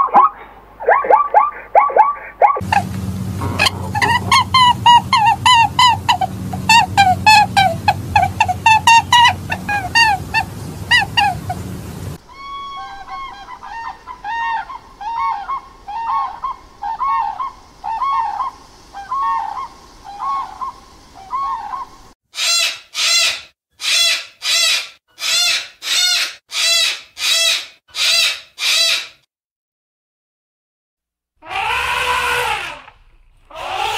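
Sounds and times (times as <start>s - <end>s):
cockatoo screeching: 0.1s - 11.6s, 12.2s - 29.2s, 31.4s - 33.9s
cranes calling: 1.0s - 23.4s.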